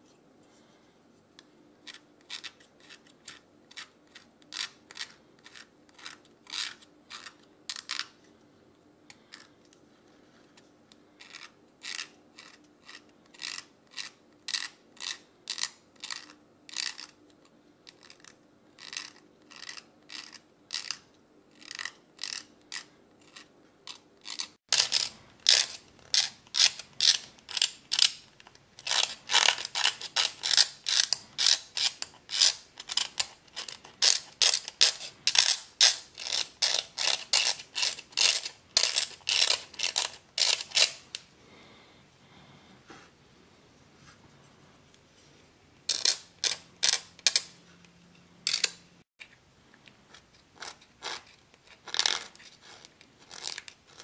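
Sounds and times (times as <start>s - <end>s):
carving tool scraping nut: 1.8s - 8.1s, 11.2s - 17.2s, 17.9s - 41.2s, 45.9s - 47.6s, 48.5s - 48.8s, 50.1s - 54.0s.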